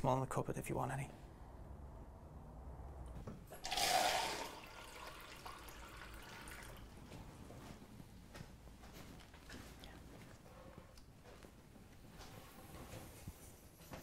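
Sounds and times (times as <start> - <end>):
tap water running into cup: 3.5 - 6.9.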